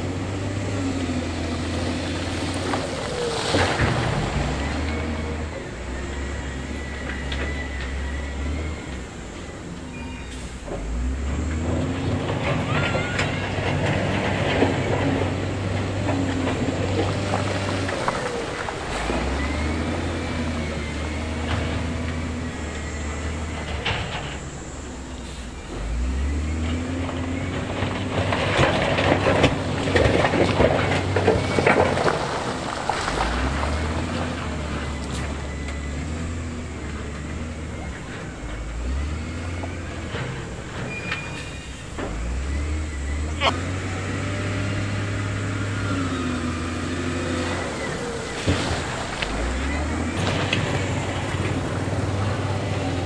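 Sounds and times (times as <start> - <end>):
diesel engine revving: 0.0 - 53.0
rocks clattering and scraping: 26.8 - 35.4.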